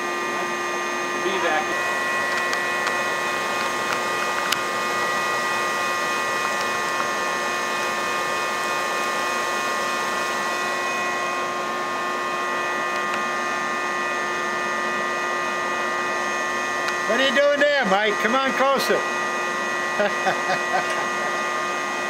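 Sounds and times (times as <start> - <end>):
wet dry vacuum running: 0.0 - 22.0.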